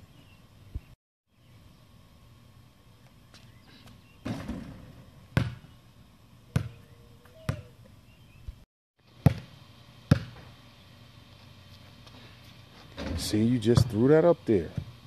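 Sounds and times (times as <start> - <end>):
basketball bouncing on concrete: 3.3 - 5.8, 6.5 - 7.7, 9.2 - 10.5, 13.0 - 14.1, 14.7 - 15.0
basketball hoop rattling: 4.2 - 5.6, 12.8 - 15.0.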